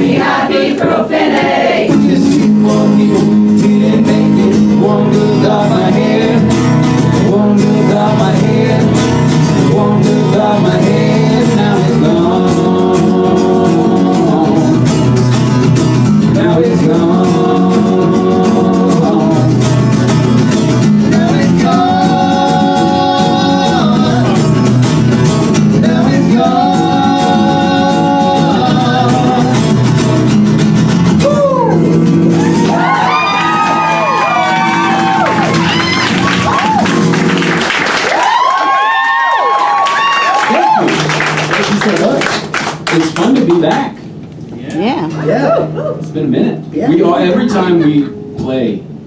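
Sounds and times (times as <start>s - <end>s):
guitar accompaniment: 0.0s - 49.0s
high sliding vocal whoops: 31.2s - 37.0s, 38.0s - 41.1s.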